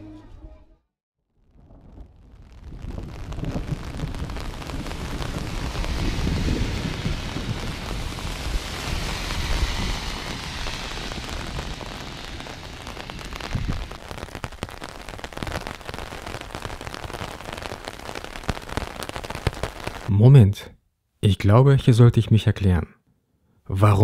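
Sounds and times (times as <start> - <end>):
wind rumble on microphone: 1.4 - 15.8
steady rain: 2.4 - 20.1
raindrops pattering on umbrella: 2.6 - 20.1.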